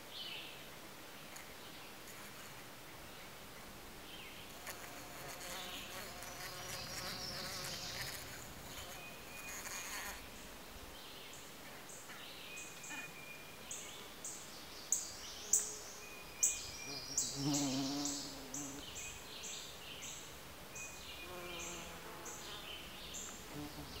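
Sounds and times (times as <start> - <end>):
bee buzzing: 4.5 - 10.3, 17.2 - 18.9, 21.2 - 22.7, 23.4 - 24.0.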